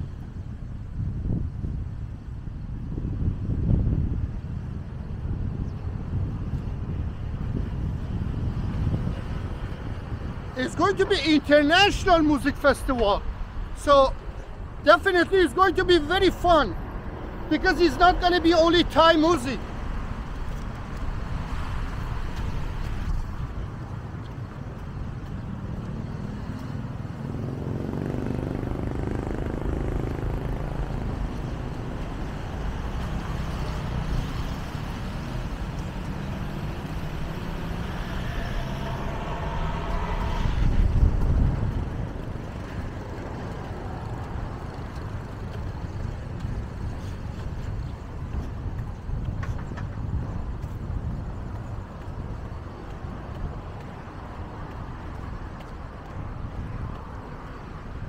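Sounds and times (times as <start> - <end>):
road traffic rumble: 0.0 - 58.0
vehicle passing close: 25.4 - 46.9.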